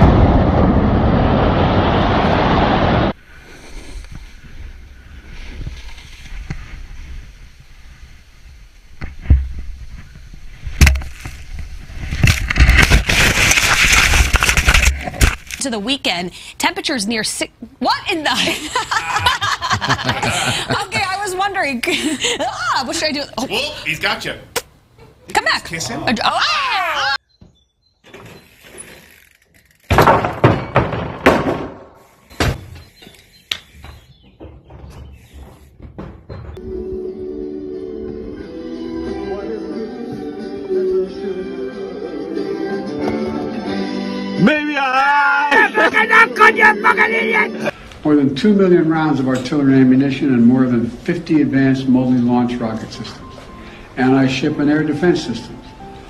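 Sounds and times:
avalanche rough rushing noise: 0:00.0 - 0:03.5
thumps: 0:29.8 - 0:36.6.

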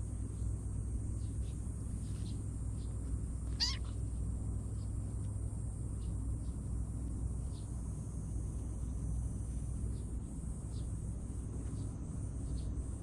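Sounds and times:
low outdoor rumble: 0:00.0 - 0:13.0
kitten meowing: 0:03.6 - 0:03.9.

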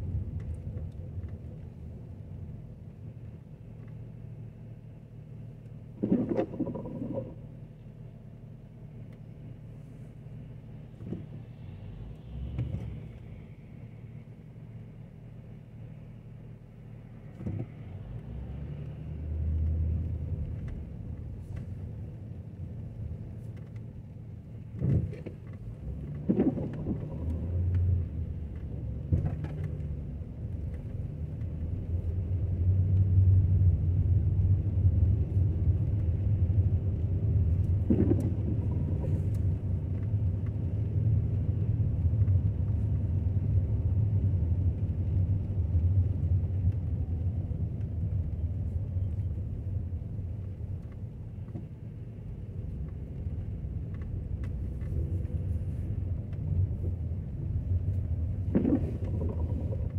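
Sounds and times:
car driving on wet pavement: 0:00.0 - 0:07.5, 0:09.0 - 0:59.9
thumps: 0:37.8 - 0:39.2.

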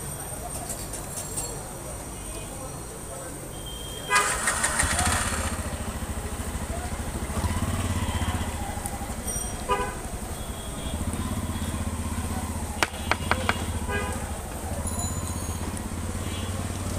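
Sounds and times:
engine idling: 0:04.2 - 0:14.4.

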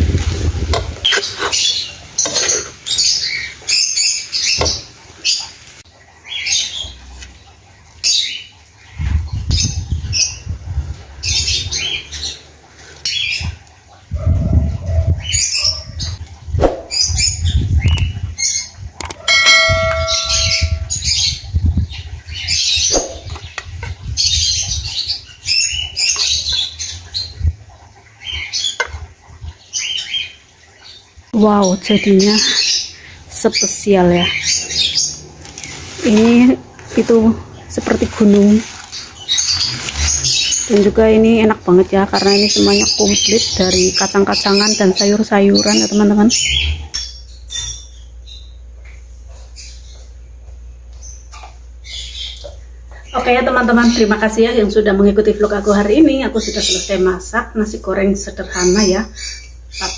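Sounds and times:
metal spatula scraping wok: 0:00.2 - 0:03.0
brief ringing tone: 0:19.2 - 0:21.0.

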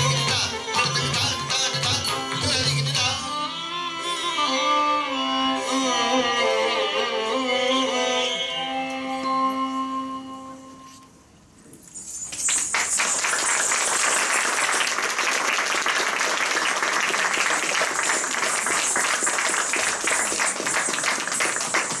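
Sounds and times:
audience applauding: 0:12.3 - 0:22.0.

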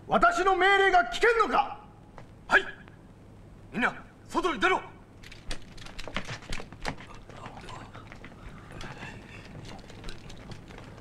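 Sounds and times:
footsteps of many people: 0:05.2 - 0:11.0.

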